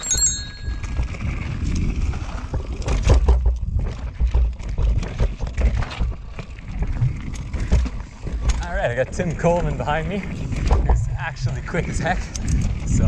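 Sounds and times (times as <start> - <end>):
bike clicks and rattles: 0.0 - 13.0
tyres rolling over dirt and stones: 0.0 - 13.0
wind rumble on microphone: 0.0 - 13.0.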